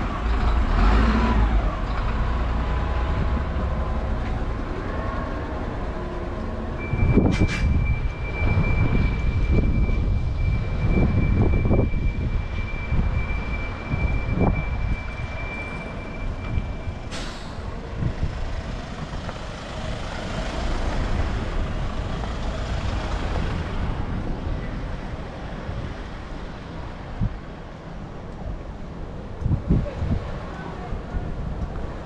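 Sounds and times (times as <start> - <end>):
heavy vehicle engine rumbling: 0.0 - 32.0
air brakes hissing: 7.2 - 7.9, 17.0 - 17.7.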